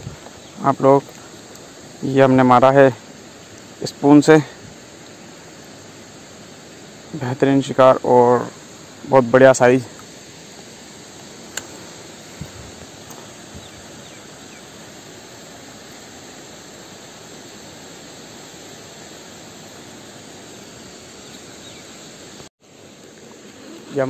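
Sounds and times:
outdoor background hiss: 0:00.0 - 0:24.0
sharp click: 0:11.5 - 0:11.7.

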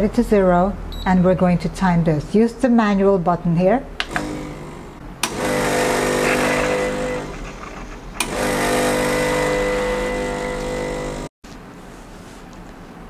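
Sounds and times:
espresso machine pump humming: 0:04.0 - 0:11.3.

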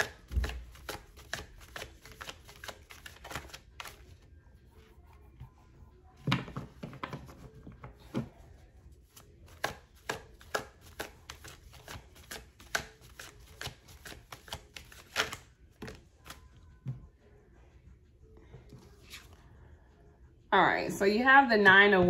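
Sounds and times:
cards being shuffled by hand: 0:00.0 - 0:04.2, 0:09.1 - 0:16.5, 0:18.7 - 0:19.4.

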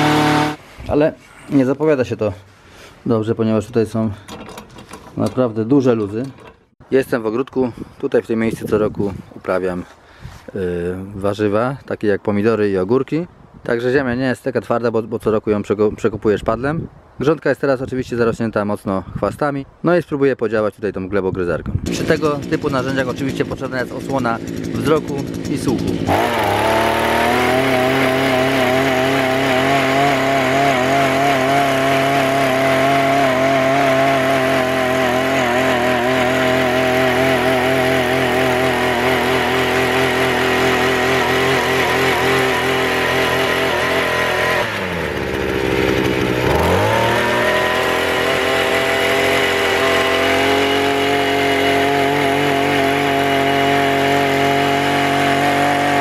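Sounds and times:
brush cutter engine revving: 0:00.0 - 0:01.0, 0:21.9 - 0:56.0
tines churning soil: 0:00.0 - 0:03.2, 0:21.9 - 0:56.0.

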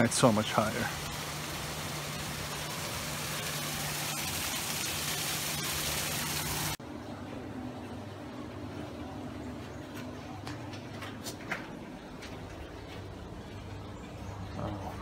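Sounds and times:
water splashing over rocks: 0:00.0 - 0:06.8
low steady hum: 0:00.7 - 0:15.0.

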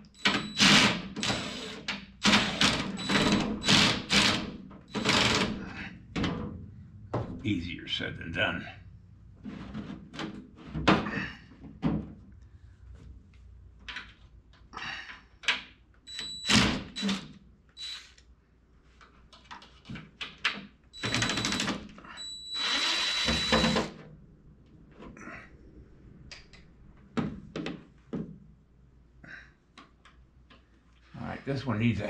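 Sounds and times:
cordless drill running: 0:00.6 - 0:05.5, 0:22.5 - 0:23.9.

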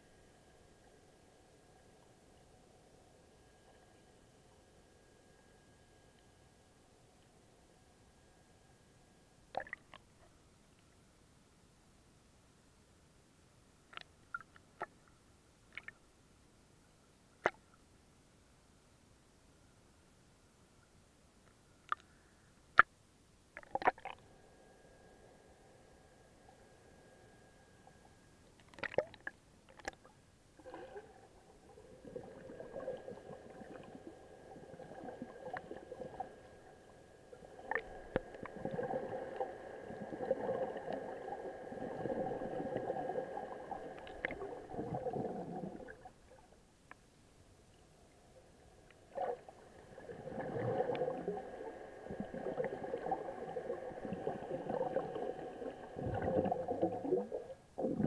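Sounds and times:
faint steady hum: 0:00.0 - 0:58.0
underwater water sloshing: 0:27.9 - 0:46.6, 0:48.3 - 0:58.0.

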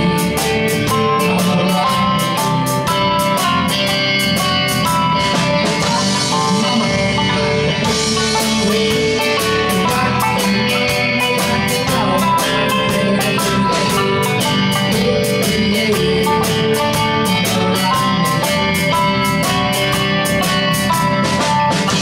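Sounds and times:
drum kit: 0:00.0 - 0:22.0
electric guitar strumming: 0:00.0 - 0:22.0.

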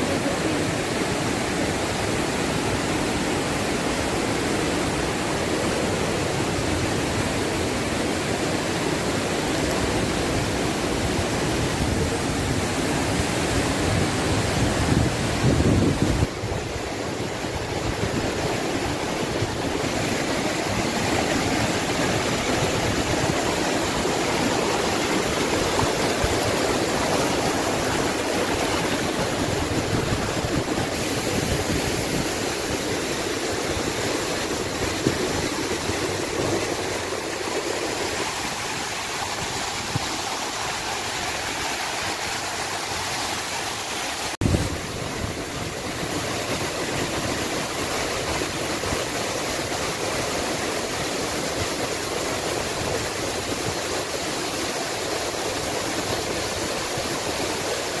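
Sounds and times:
waterfall roaring: 0:00.0 - 0:58.0.

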